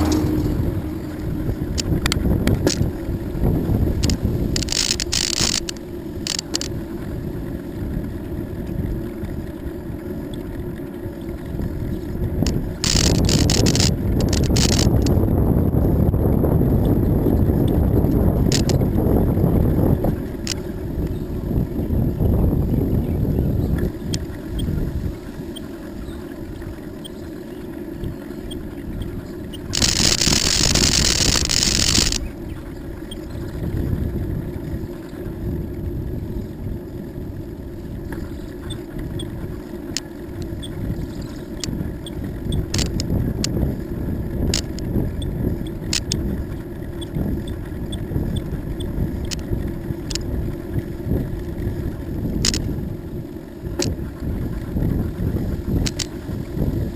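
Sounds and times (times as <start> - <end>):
low rumble: 0.0 - 9.9
wind buffeting microphone: 0.0 - 56.9
sharp ticks and clicks: 1.7 - 2.9, 4.0 - 6.8, 12.4 - 15.2, 17.6 - 19.0, 20.4 - 21.2, 28.0 - 32.3, 41.5 - 43.6, 44.5 - 46.3, 47.0 - 50.3, 52.4 - 52.7, 55.8 - 56.2.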